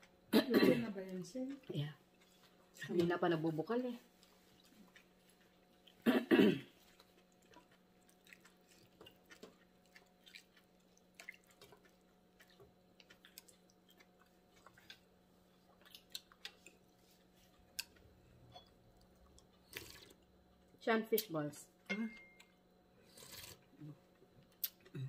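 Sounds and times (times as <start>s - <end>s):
faint steady hum: 0.0s - 25.0s
person clearing throat: 0.3s - 1.0s, 6.0s - 6.8s.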